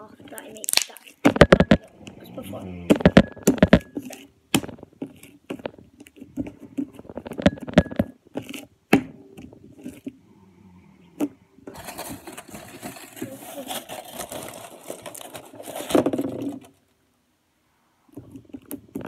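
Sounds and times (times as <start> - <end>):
slime being kneaded by hand: 0.2 - 7.6
clicks and pops of slime: 0.6 - 1.8
steady noise: 0.6 - 5.0.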